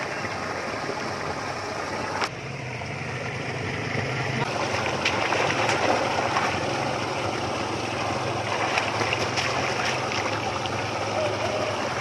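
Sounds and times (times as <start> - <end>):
feet splashing through muddy water: 4.4 - 12.0.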